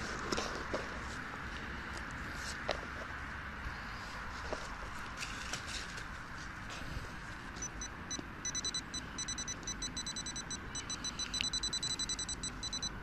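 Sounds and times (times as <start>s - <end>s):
metal detector probe beeping: 7.6s - 13.0s.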